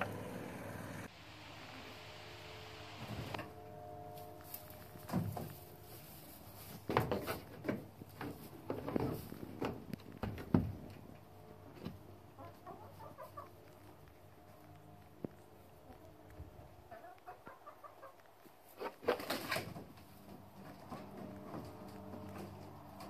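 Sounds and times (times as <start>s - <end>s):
chickens clucking: 12.3s - 13.9s, 16.8s - 19.5s.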